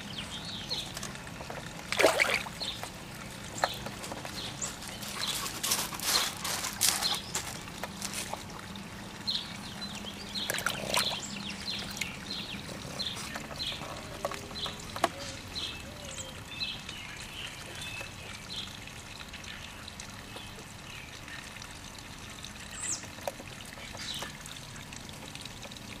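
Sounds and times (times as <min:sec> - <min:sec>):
water trickling and splashing: 0:00.0 - 0:26.0
dog lapping at water: 0:00.1 - 0:08.7, 0:10.0 - 0:15.7.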